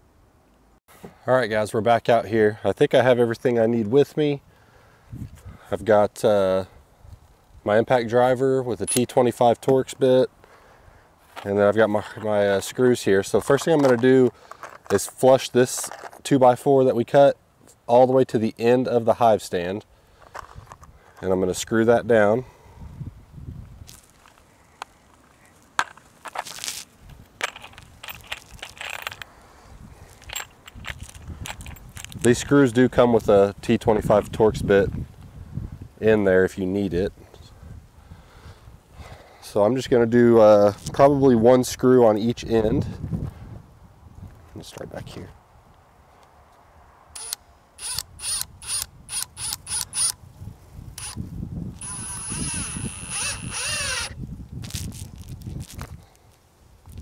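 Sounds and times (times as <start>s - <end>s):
crunchy rustles: 11.2s - 16.3s, 23.7s - 33.3s, 53.2s - 57.0s
impact driver whine: 51.8s - 54.2s.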